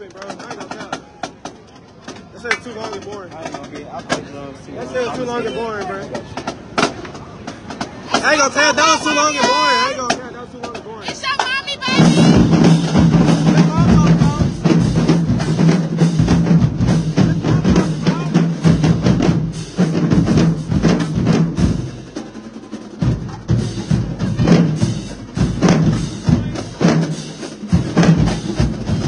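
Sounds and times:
snare and tenor drums: 0.0s - 29.0s
bass drums: 6.1s - 29.0s.

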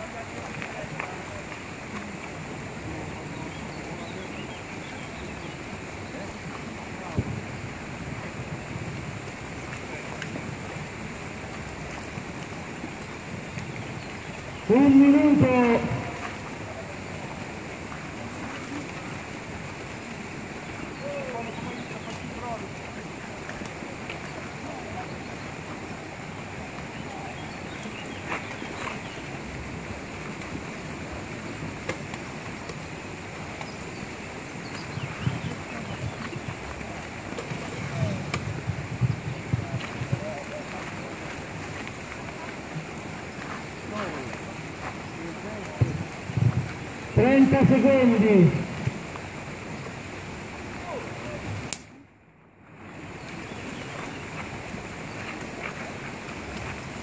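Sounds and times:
even outdoor hiss: 0.0s - 57.0s
wind on microphone: 5.1s - 24.0s, 25.0s - 51.7s
faint distant voices: 14.6s - 29.6s, 34.7s - 49.1s
faint sharp clicks: 51.6s - 52.0s.

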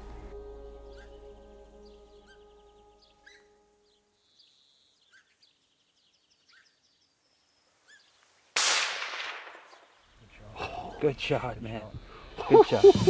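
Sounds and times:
faint bird chirps: 0.8s - 8.4s
loud rifle shot: 8.6s - 9.9s.

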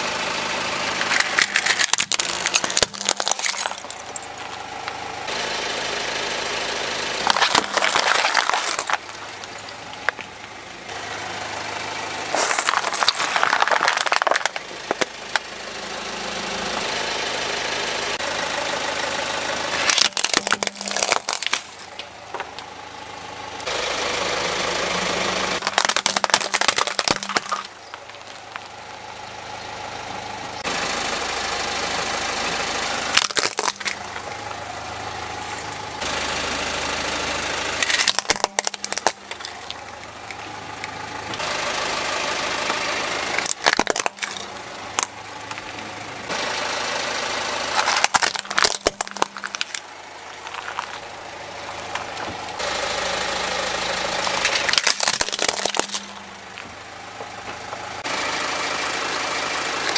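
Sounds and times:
car engine running: 0.0s - 59.9s
car tyre crushing plastic toys: 0.8s - 5.0s, 7.2s - 11.0s, 12.2s - 15.5s, 19.7s - 22.8s, 24.9s - 29.0s, 33.0s - 34.6s, 37.7s - 46.5s, 47.3s - 58.1s.

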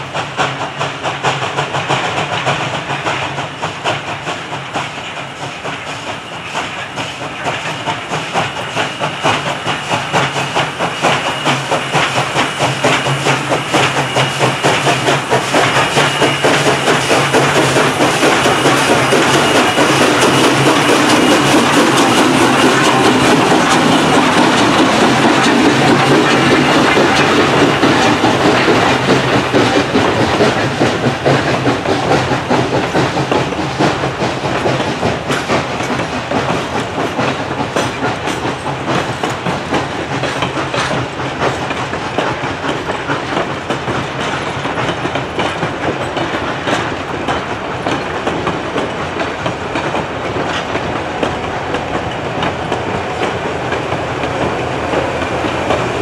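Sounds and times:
steam locomotive exhaust beats: 0.0s - 56.0s
train wheels clicking over rail joints: 0.0s - 56.0s.

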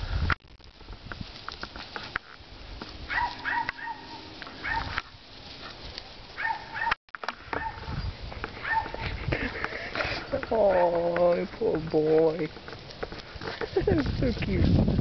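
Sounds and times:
scuffling on grass: 0.5s - 15.0s.

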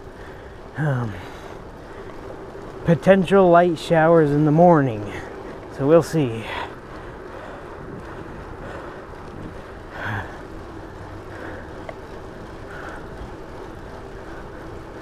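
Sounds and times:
bicycle tyres on pavement: 0.0s - 15.0s
wind over microphone: 4.6s - 15.0s.

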